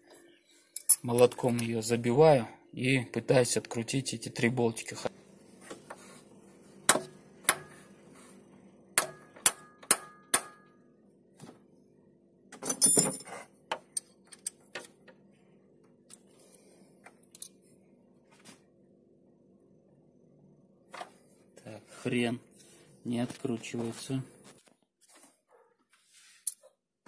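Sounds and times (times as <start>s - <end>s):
hammer striking metal bit: 6.9s - 7.9s, 9.0s - 10.7s.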